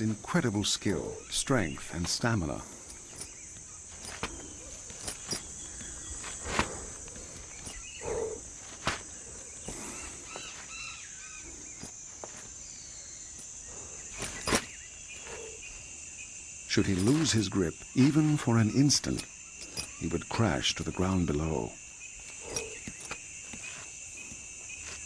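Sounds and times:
high-pitched insect drone: 0:00.0 - 0:25.0
short bird calls: 0:03.0 - 0:20.1.

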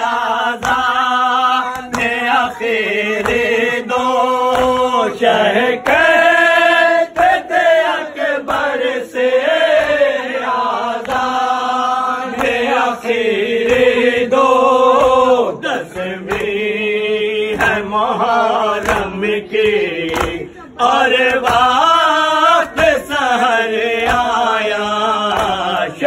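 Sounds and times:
men chanting a lament: 0:00.0 - 0:26.0
hands slapping chests: 0:00.4 - 0:05.0, 0:07.0 - 0:08.9, 0:09.6 - 0:16.7, 0:18.7 - 0:23.2, 0:24.0 - 0:26.0.

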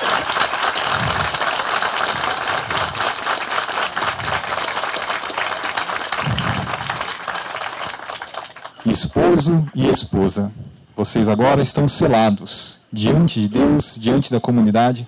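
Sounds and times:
crowd clapping: 0:00.0 - 0:10.0.

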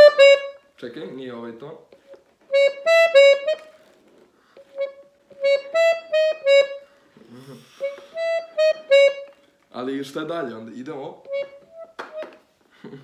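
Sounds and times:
piano accordion playing detached notes: 0:00.0 - 0:00.6, 0:02.5 - 0:03.8, 0:04.6 - 0:07.0, 0:07.7 - 0:09.4, 0:11.2 - 0:12.3.

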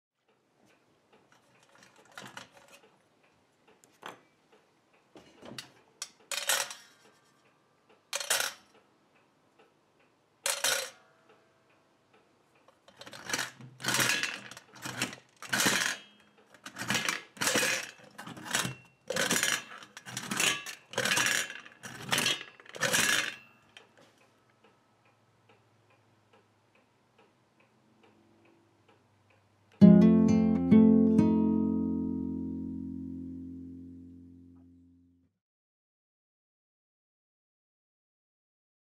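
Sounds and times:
tin toy metal clinks and rattles: 0:06.3 - 0:07.0, 0:08.2 - 0:08.7, 0:10.5 - 0:11.0, 0:13.0 - 0:23.4
tin body clattering: 0:12.9 - 0:23.4
acoustic guitar music: 0:29.8 - 0:34.9.

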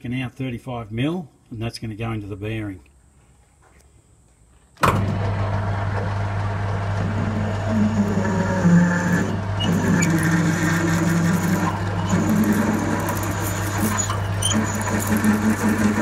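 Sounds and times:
lathe motor hum: 0:05.0 - 0:16.0
drill scraping into metal: 0:07.0 - 0:16.0.

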